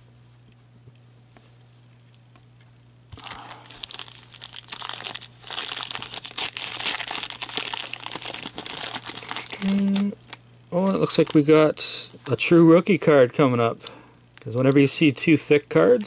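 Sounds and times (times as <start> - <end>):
foil wrapper tearing and crinkling: 3.2 - 11.5.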